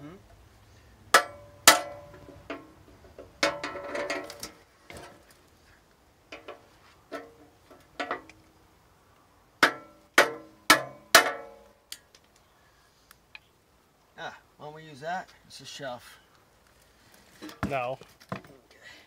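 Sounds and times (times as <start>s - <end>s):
hammer striking metal: 1.1s - 2.1s, 9.6s - 11.6s.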